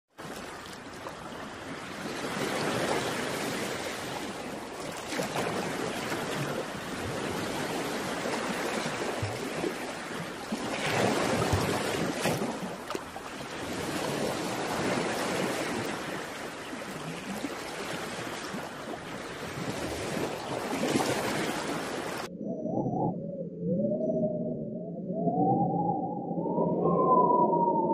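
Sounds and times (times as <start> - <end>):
surf washing on rocky shore: 0.2 - 22.3.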